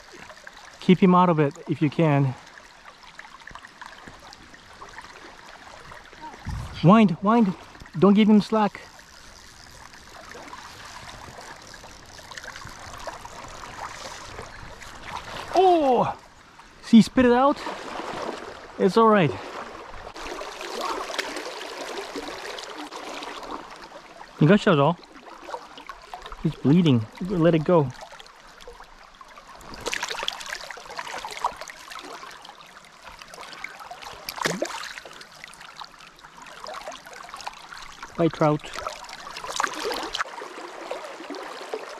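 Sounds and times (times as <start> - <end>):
shallow river water babbling: 0.0 - 41.9
faint small splashes: 17.6 - 24.4, 27.1 - 41.9.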